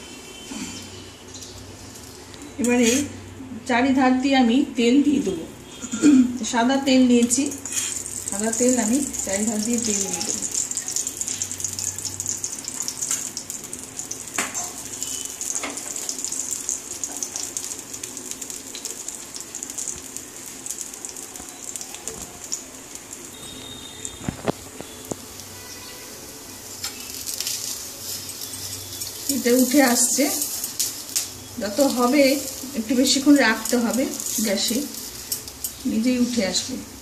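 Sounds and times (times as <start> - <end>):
batter sizzling on a griddle: 0.0 - 3.4, 5.6 - 37.0
metal spatula scraping pan: 2.7 - 3.2, 7.6 - 8.1
metal utensils clicking on pan: 9.1 - 13.4, 14.4 - 14.8, 33.5 - 35.9.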